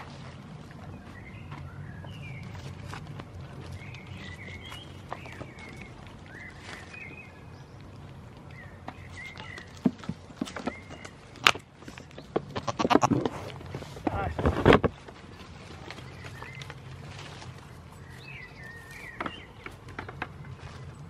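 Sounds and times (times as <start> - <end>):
low outdoor rumble: 0.0 - 21.0
small birds chirping: 0.5 - 13.1, 14.9 - 21.0.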